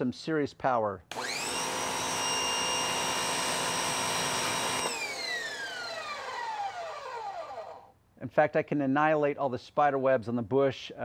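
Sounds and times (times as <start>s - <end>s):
pressure washer motor whining: 1.1s - 7.9s.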